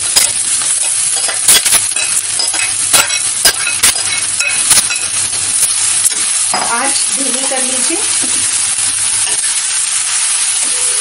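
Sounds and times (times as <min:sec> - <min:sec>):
onions sizzling in a pan: 0:00.0 - 0:11.0.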